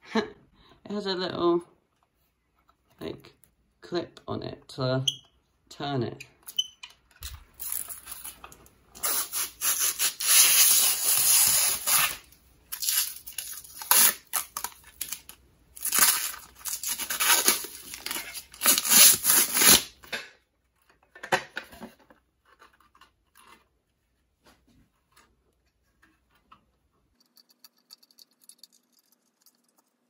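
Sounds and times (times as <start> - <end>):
plastic film being peeled off: 7.2 - 20.0.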